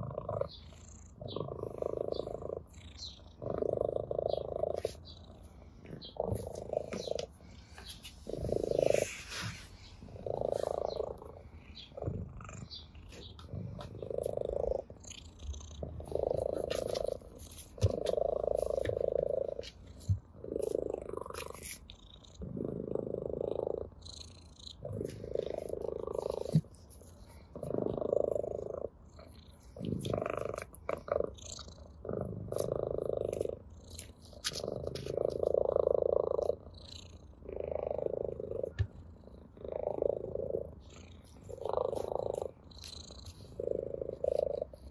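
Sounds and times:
cat purring: 0:00.0 - 0:44.9.

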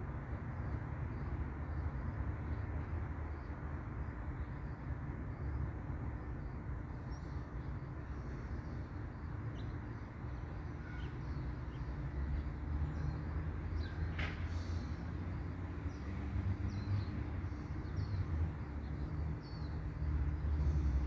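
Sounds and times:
faint bird chirps: 0:10.6 - 0:11.9.

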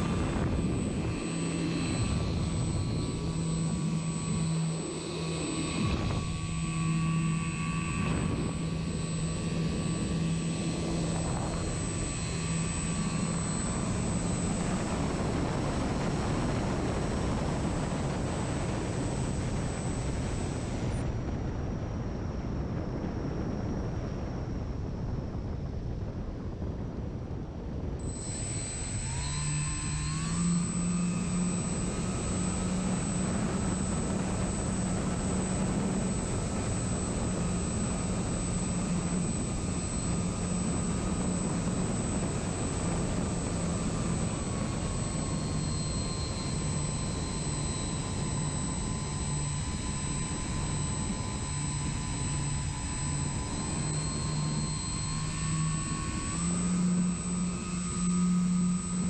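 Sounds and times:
model plane motor whine: 0:00.0 - 0:21.1, 0:28.0 - 0:59.0.

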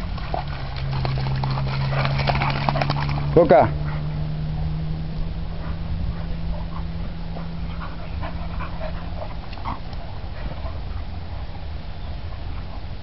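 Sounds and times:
dogs yelping while playing: 0:05.6 - 0:11.3.

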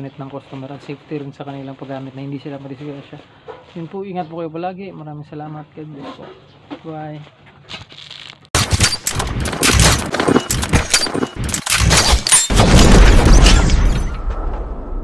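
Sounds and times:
loud low boom: 0:12.6 - 0:15.0.

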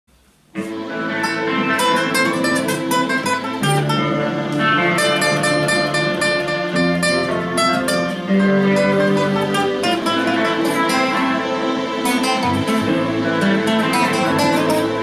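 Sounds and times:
acoustic guitar strumming chords: 0:00.5 - 0:15.0.

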